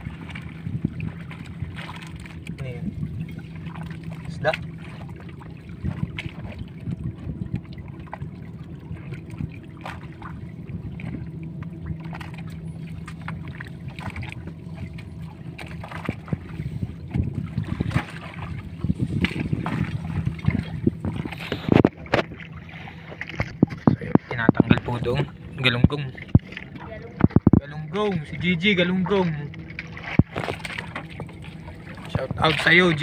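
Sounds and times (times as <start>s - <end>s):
boat motor humming: 0.0s - 33.0s
net and floats knocking hull: 29.2s - 33.0s.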